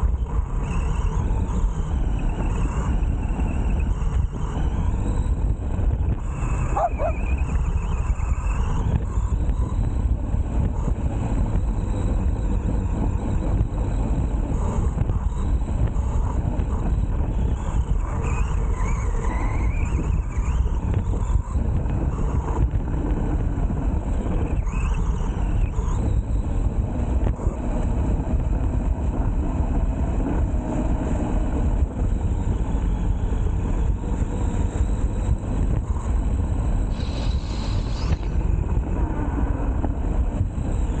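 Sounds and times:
toy truck drivetrain rumble: 0:00.0 - 0:41.0
wind on microphone: 0:00.0 - 0:41.0
brief high hiss: 0:36.9 - 0:38.3.

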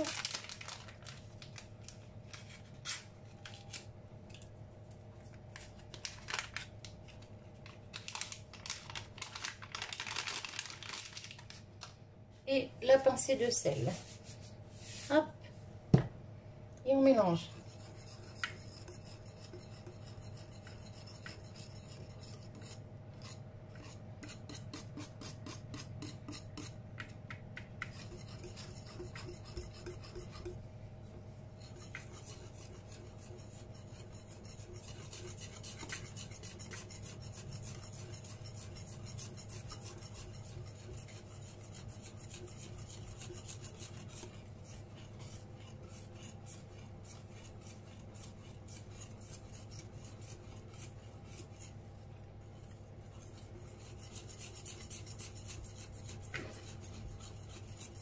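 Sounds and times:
whisk scraping glass bowl: 0:16.9 - 0:26.8, 0:27.8 - 0:30.6, 0:31.5 - 0:51.8, 0:52.5 - 0:58.0.

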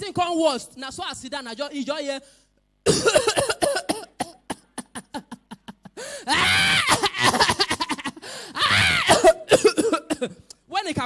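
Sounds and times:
man coughing: 0:02.9 - 0:05.4, 0:06.6 - 0:10.5
man gasping: 0:06.0 - 0:06.4, 0:08.2 - 0:08.6.

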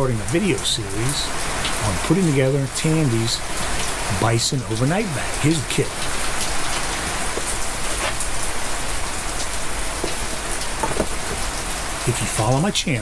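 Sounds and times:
heavy rain on a roof: 0:00.0 - 0:13.0
faint knocks: 0:10.0 - 0:11.5.

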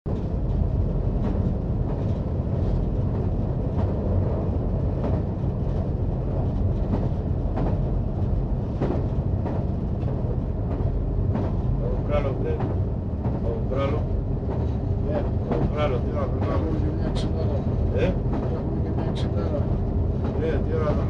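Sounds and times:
train rumbling on rails: 0:00.1 - 0:21.0.

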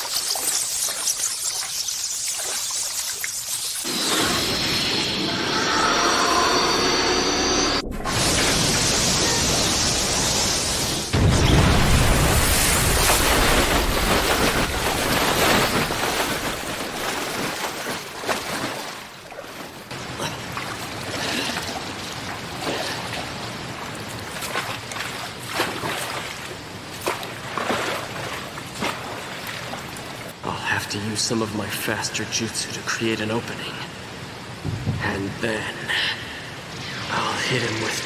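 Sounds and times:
running water with splashes: 0:00.0 - 0:03.9, 0:11.8 - 0:30.4.

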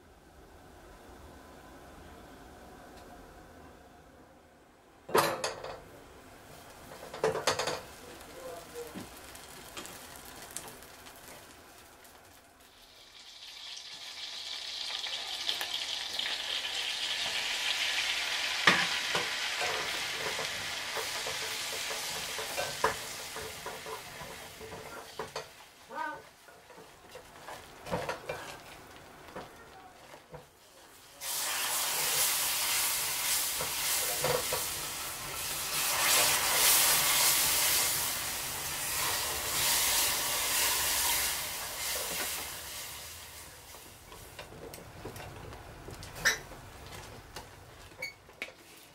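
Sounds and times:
butter sizzling in a saucepan: 0:06.6 - 0:44.4
spatula knocking and scraping pan: 0:18.7 - 0:25.5.

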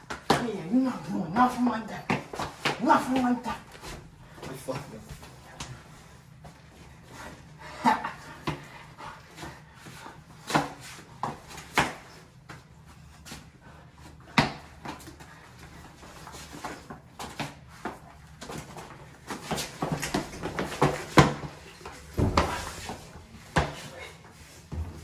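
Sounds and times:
people grunting: 0:07.6 - 0:08.7
scuffling on tile floor: 0:14.9 - 0:25.0.

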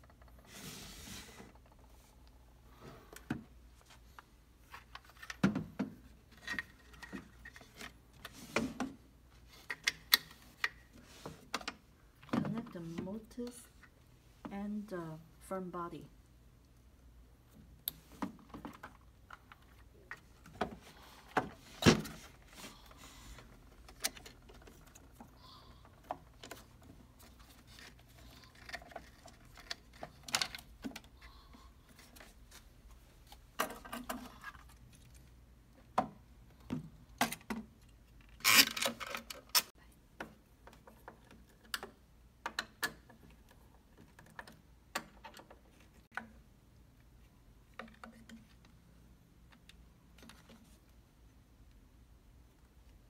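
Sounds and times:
lock parts clicking and rattling: 0:37.2 - 0:39.7.

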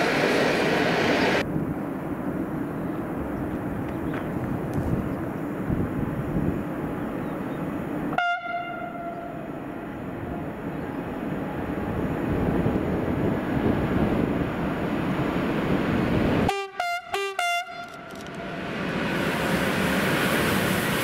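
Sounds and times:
train rumbling: 0:00.0 - 0:21.0
locomotive horn: 0:08.1 - 0:09.5, 0:16.5 - 0:18.3.

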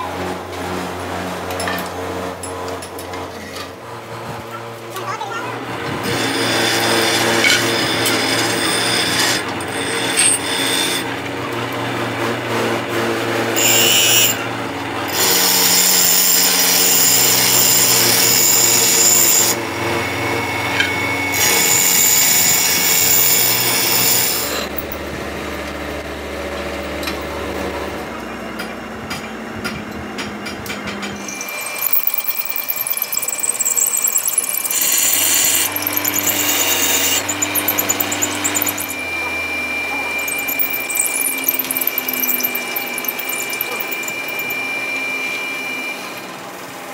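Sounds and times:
drill press motor hum: 0:05.9 - 0:11.8, 0:12.9 - 0:28.2, 0:31.1 - 0:46.3
drill cutting metal: 0:06.0 - 0:11.2, 0:12.9 - 0:24.9, 0:31.2 - 0:46.3.

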